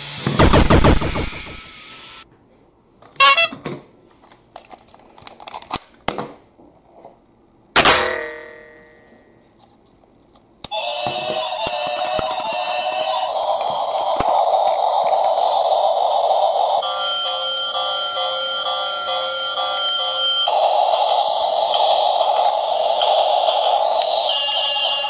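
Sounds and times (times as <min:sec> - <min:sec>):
toy electronic sound: 0:10.7 - 0:25.0
electronic toy tune: 0:16.4 - 0:25.0.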